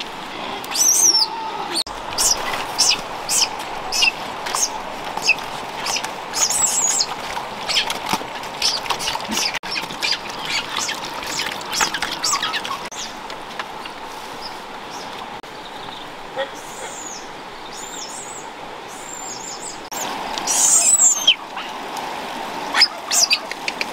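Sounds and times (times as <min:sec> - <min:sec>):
pigs chewing wetly: 0:03.6 - 0:14.0.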